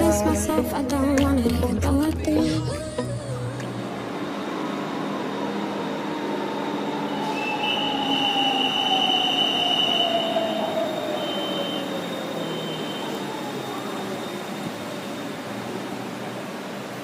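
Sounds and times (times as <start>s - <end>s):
electric train motor whine: 3.7s - 17.0s
high steady squeal: 3.9s - 16.0s.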